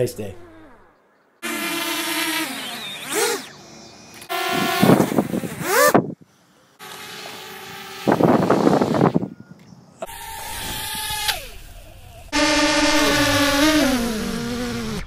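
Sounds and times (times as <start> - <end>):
drone propellers whining: 1.5 - 6.0, 10.0 - 15.0.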